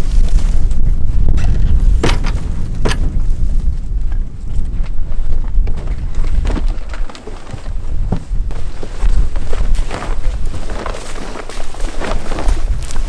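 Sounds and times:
low rumble: 0.0 - 10.4
sharp knocks: 2.0 - 3.2.

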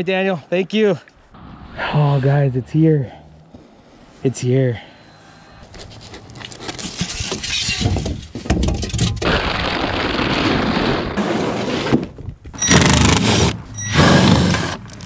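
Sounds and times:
styrofoam crunching and breaking: 9.2 - 11.4.

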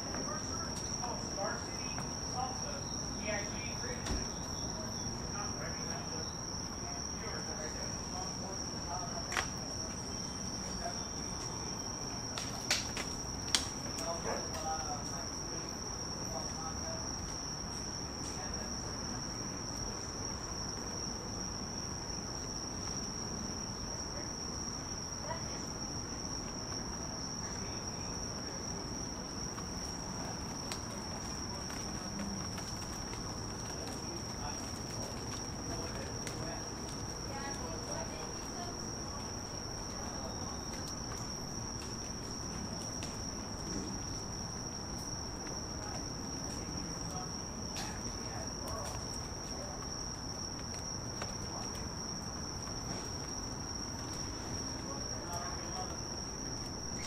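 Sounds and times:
insects trilling: 0.0 - 57.0
insect trilling: 54.0 - 57.0.

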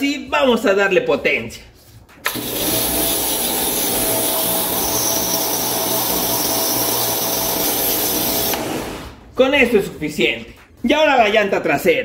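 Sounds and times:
pressure washer motor whine: 2.3 - 9.2.

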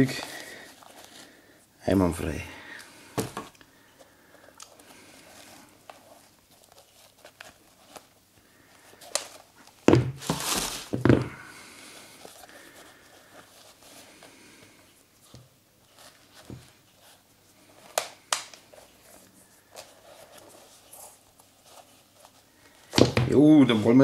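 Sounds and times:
tissue paper rustling: 4.8 - 11.0, 15.7 - 17.9, 18.6 - 22.9.

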